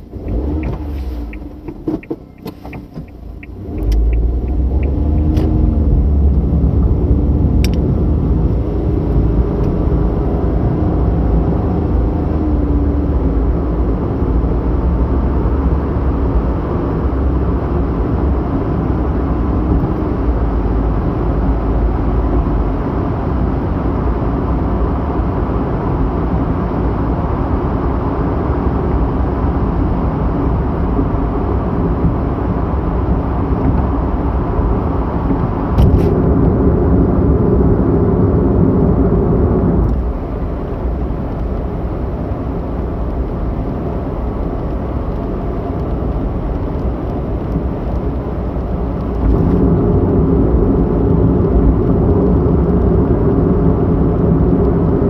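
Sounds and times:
tyre and engine rumble: 0.0s - 23.0s.

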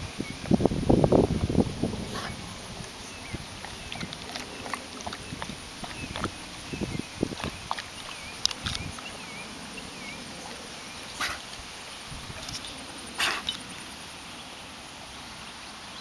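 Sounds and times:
dog swimming: 1.6s - 11.8s.

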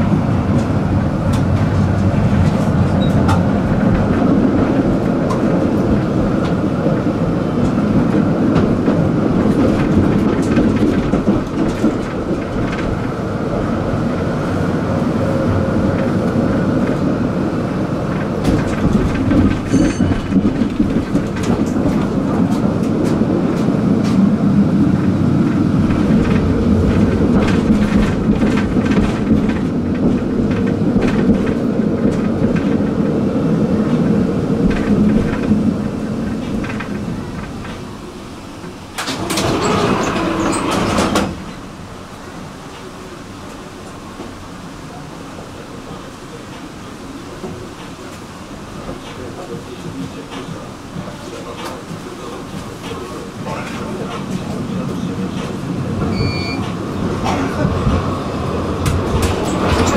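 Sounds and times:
tram wheels rumbling on rails: 0.0s - 59.9s
clicks over rail joints: 24.9s - 33.1s, 33.8s - 37.9s, 58.8s - 59.9s
brief high tone: 56.1s - 56.6s.

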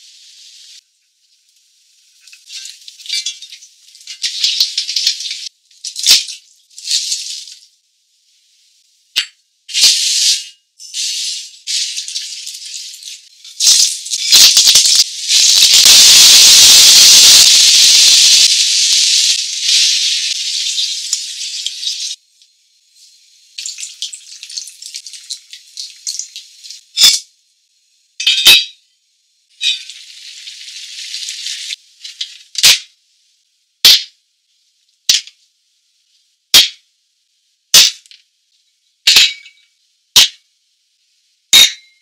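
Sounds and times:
hot oil sizzling in a frying pan: 0.0s - 7.7s, 9.7s - 27.4s, 29.6s - 32.9s.

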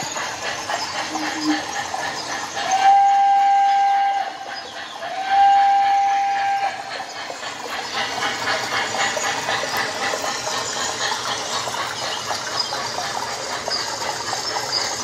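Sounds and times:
locomotive chuffing: 0.0s - 15.0s
model train steam whistle: 2.6s - 6.9s.

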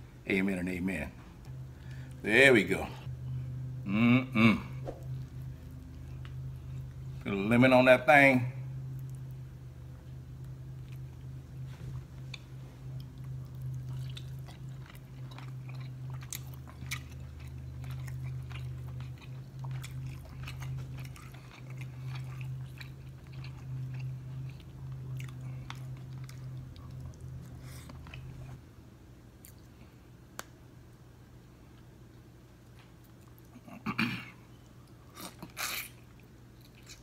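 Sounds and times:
steady low hum: 0.0s - 37.0s
chewing and wet smacks: 8.8s - 9.4s, 10.3s - 11.4s, 12.0s - 28.6s, 34.6s - 37.0s.

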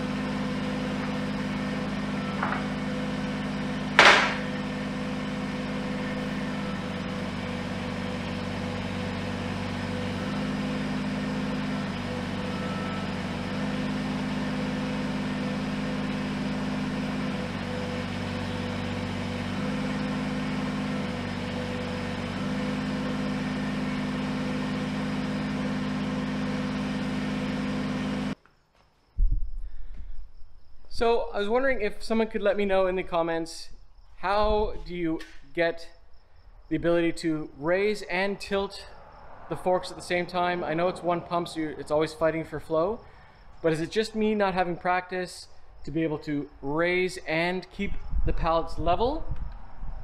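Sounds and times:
tractor diesel engine running: 0.0s - 28.4s, 39.5s - 44.7s.

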